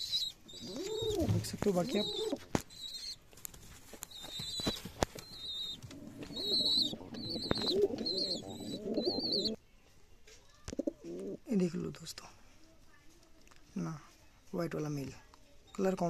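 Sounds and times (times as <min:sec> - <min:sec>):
pigeons cooing: 0:00.0 - 0:03.2, 0:04.1 - 0:09.6
high wavering peeps: 0:04.2 - 0:09.6.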